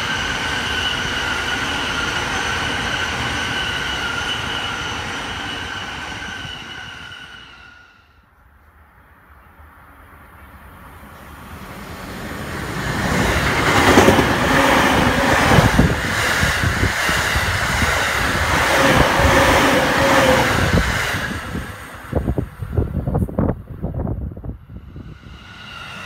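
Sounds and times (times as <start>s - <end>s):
train rumble and rail noise: 0.0s - 26.0s
wind buffeting microphone: 12.6s - 26.0s.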